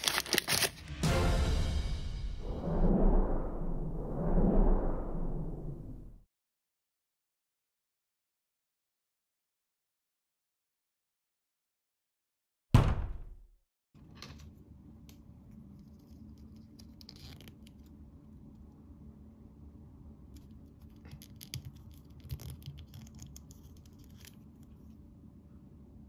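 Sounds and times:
plastic doll clicks and scratches: 0:00.0 - 0:00.7, 0:20.4 - 0:24.8.

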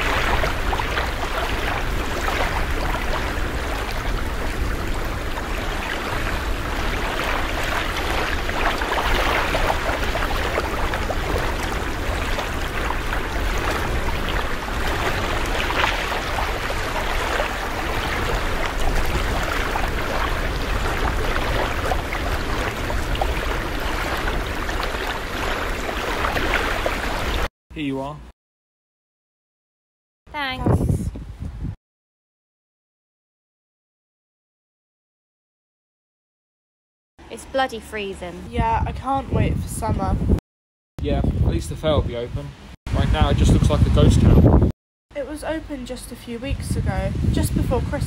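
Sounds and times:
wind and surf rushing: 0:00.0 - 0:27.5, 0:41.0 - 0:44.7, 0:46.5 - 0:48.0.

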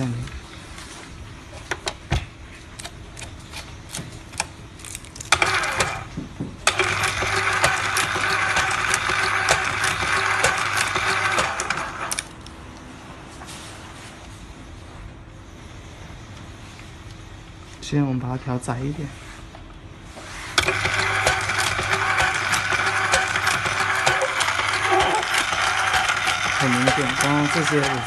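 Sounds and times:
motor hum: 0:05.3 - 0:12.5, 0:20.2 - 0:28.0.

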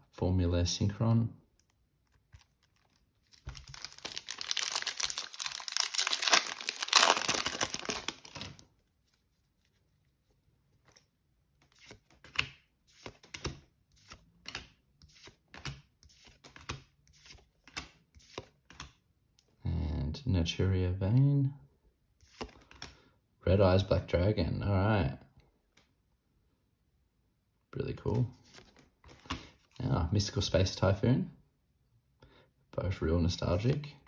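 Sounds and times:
plastic wrapper crinkling: 0:02.0 - 0:08.8.

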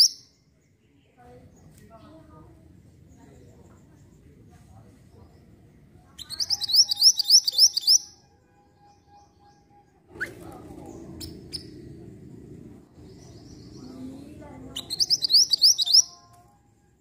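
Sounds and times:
bird trilling chirps: 0:00.0 - 0:00.4, 0:06.2 - 0:08.2, 0:08.8 - 0:11.9, 0:13.0 - 0:16.2
faint bird chirps: 0:00.0 - 0:02.2, 0:02.9 - 0:12.1, 0:12.9 - 0:17.0
low background rumble: 0:10.0 - 0:15.4.

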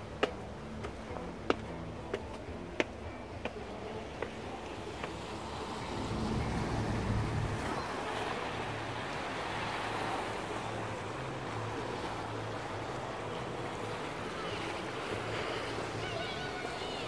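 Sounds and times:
sea waves washing on shore: 0:00.0 - 0:17.0
wind on microphone: 0:05.4 - 0:08.8.

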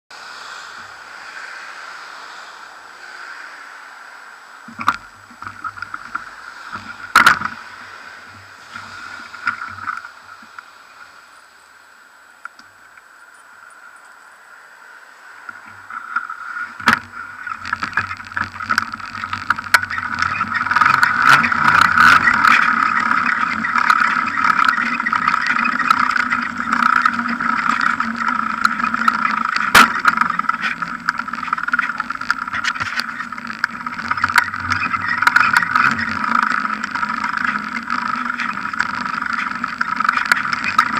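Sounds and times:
bicycle riding over pavement: 0:04.6 - 0:11.3, 0:15.4 - 0:40.9
rattles and knocks from bike: 0:04.7 - 0:10.7, 0:15.5 - 0:40.9.

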